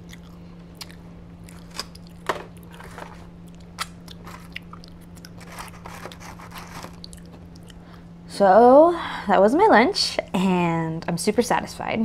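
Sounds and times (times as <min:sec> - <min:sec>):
crunching and chewing fries: 0:00.0 - 0:08.0
steady low hum: 0:00.0 - 0:12.0.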